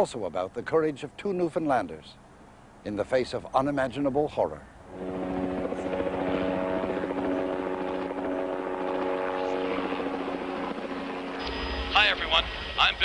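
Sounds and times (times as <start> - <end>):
helicopter flying overhead: 4.9 - 13.0.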